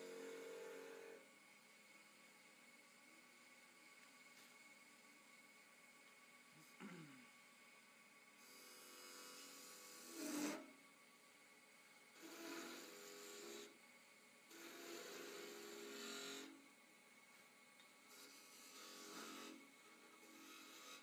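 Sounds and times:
lathe humming: 0.0s - 6.8s, 7.5s - 17.0s, 18.1s - 21.0s
turning tool scraping wood: 9.2s - 10.6s, 12.2s - 13.7s, 14.5s - 16.5s, 18.1s - 21.0s.

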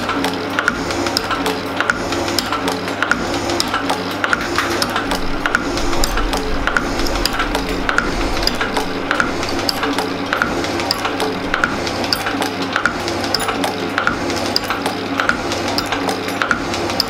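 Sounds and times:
background music: 0.0s - 17.0s
machine ram clicking: 0.0s - 17.0s
shaping machine cutting metal: 0.0s - 17.0s.

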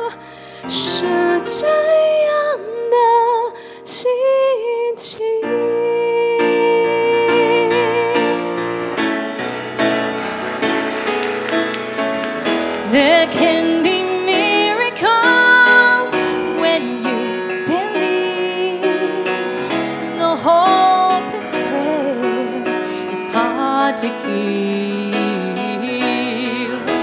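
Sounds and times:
instrumental accompaniment: 6.4s - 27.0s
woman singing gospel pop: 12.8s - 27.0s.

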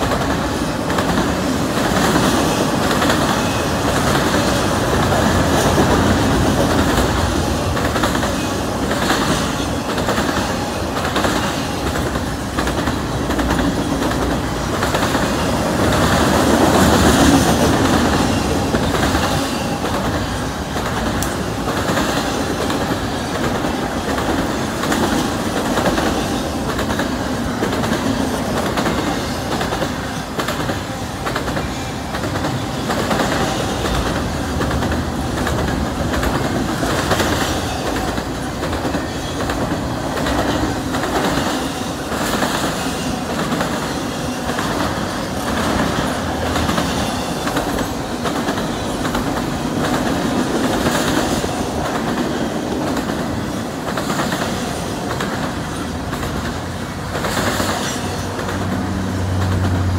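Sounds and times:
clickety-clack of wheels on rails: 0.0s - 59.9s
freight train rumbling past: 0.0s - 59.9s.

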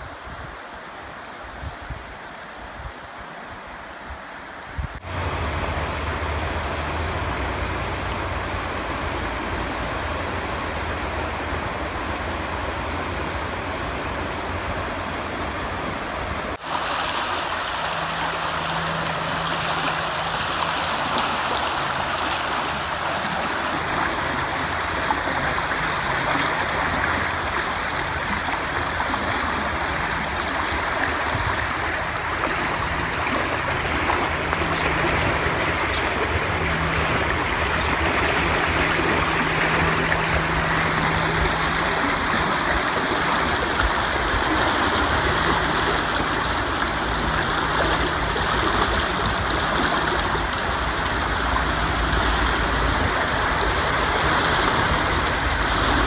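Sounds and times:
fast river water rushing: 0.0s - 56.0s.

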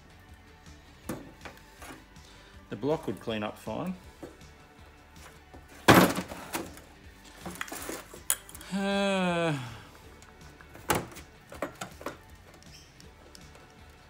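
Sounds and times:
man's wordless vocal sound: 8.6s - 9.9s.

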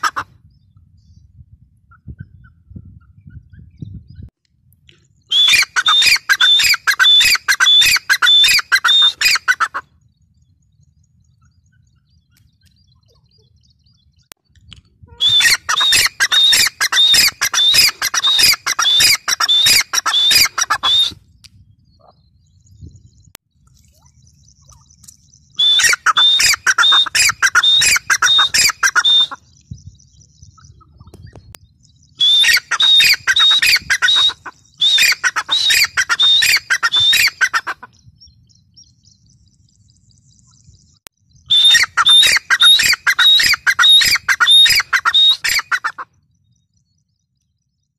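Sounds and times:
francolin calling: 5.3s - 14.3s, 15.0s - 21.2s, 23.7s - 47.9s.

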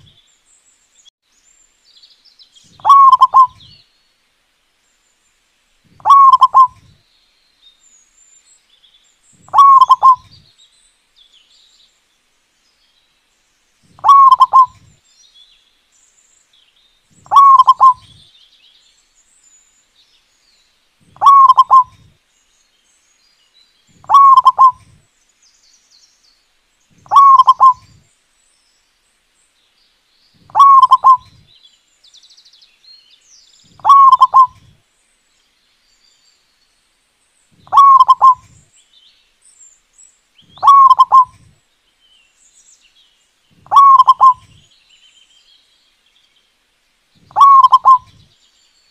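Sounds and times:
dove cooing: 2.8s - 3.7s, 6.0s - 6.9s, 9.5s - 10.4s, 14.0s - 14.9s, 17.2s - 18.2s, 21.1s - 22.1s, 24.0s - 25.0s, 27.0s - 28.0s, 30.5s - 31.4s, 33.8s - 34.8s, 37.6s - 38.6s, 40.6s - 41.5s, 43.6s - 44.6s, 47.2s - 48.2s.

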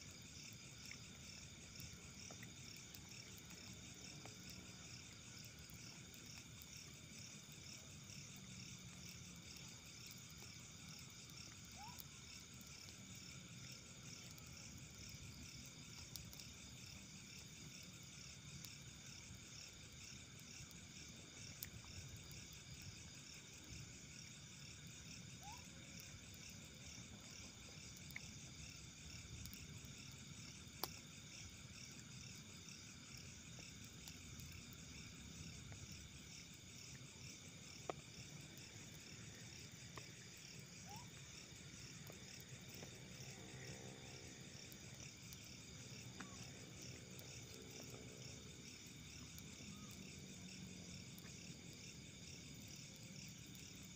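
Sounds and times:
crickets chirping: 0.0s - 53.9s.

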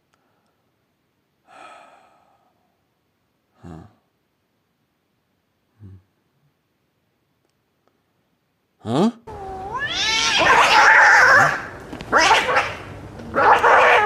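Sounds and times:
cat yowling and screeching: 9.3s - 14.0s.

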